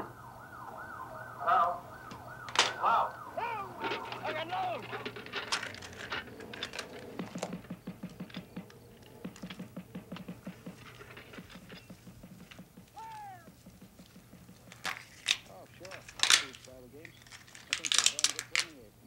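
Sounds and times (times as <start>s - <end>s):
handheld device clicks and rattles: 14.0s - 18.7s.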